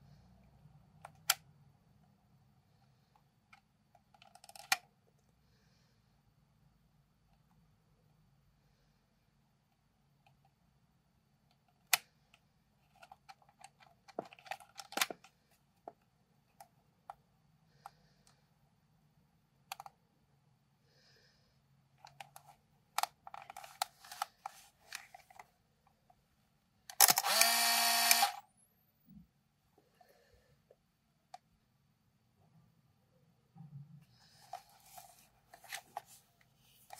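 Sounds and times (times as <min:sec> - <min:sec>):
small plastic clicks of camera controls: 0:03.5 - 0:04.8, 0:26.9 - 0:28.4
camera motor whirring: 0:27.0 - 0:28.4.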